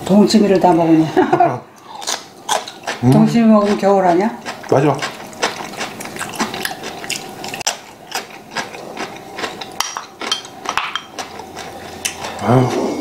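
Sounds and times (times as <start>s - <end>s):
chewing: 1.8s - 13.0s
utensils clicking on ceramic bowls: 2.0s - 12.4s.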